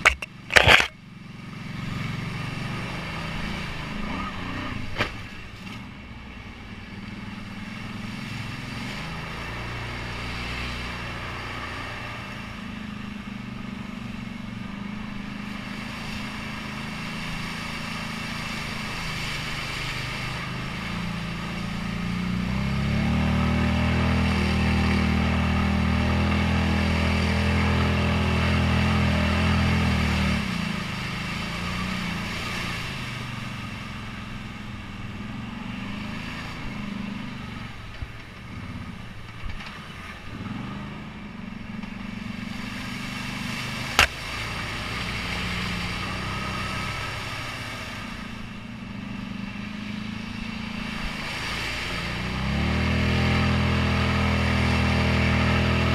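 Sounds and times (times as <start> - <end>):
atv engine revving: 0.0 - 5.9, 6.9 - 55.9
sharp knock: 44.0 - 44.2.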